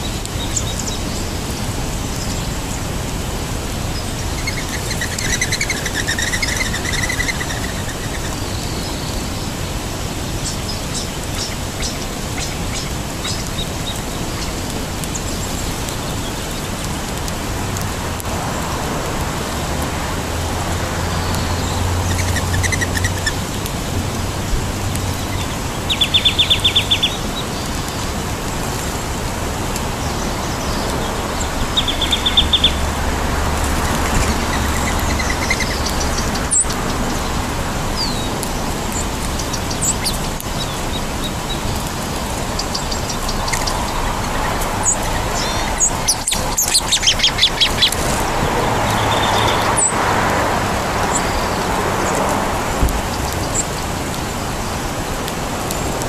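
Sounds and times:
songbirds chirping: 0:00.0 - 0:56.0
steady rushing noise: 0:00.0 - 0:56.0
bird trills: 0:04.2 - 0:09.3.

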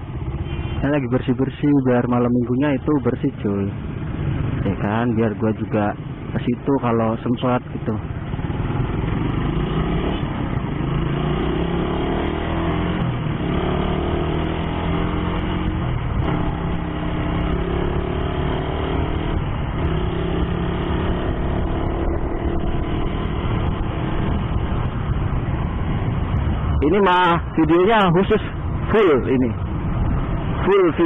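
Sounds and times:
wind and road noise: 0:00.0 - 0:31.0
motorcycle engine accelerating: 0:08.0 - 0:26.9.

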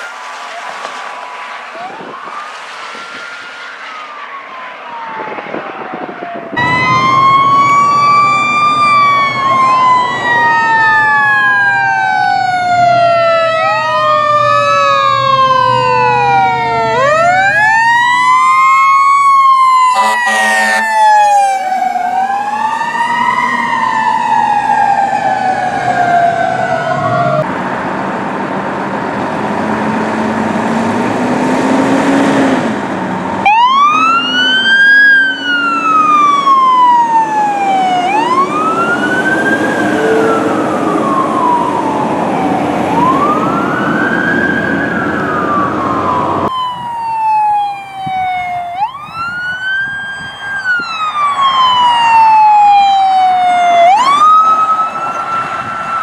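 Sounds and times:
truck engine: 0:00.0 - 0:49.9
fire truck sirens wailing: 0:00.0 - 0:56.0
road noise: 0:00.0 - 0:56.0
horn blast: 0:19.9 - 0:21.6.

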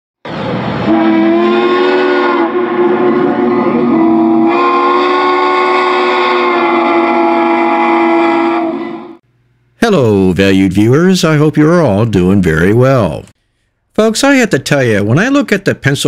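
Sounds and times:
steam locomotive chime whistle: 0:00.8 - 0:09.2.

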